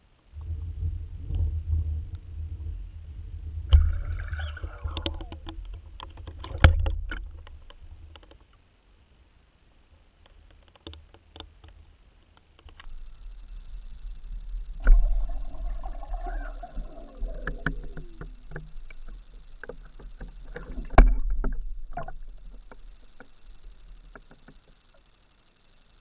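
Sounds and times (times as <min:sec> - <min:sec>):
heavy underwater thumps: 0:00.4 - 0:08.2
water sloshing: 0:00.4 - 0:08.3
sharp clicks: 0:03.6 - 0:08.6.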